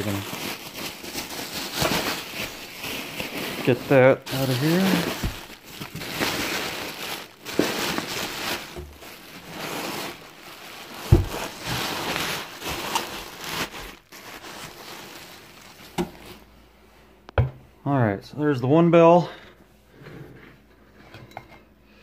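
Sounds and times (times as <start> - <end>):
bubble wrap crinkling: 0.0 - 16.5.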